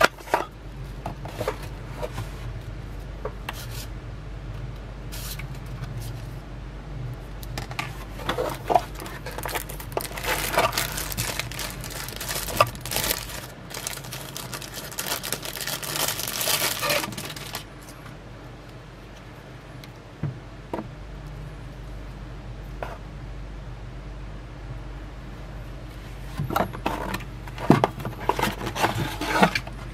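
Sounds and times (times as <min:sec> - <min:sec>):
plastic sleeve crinkling: 0:08.1 - 0:17.9.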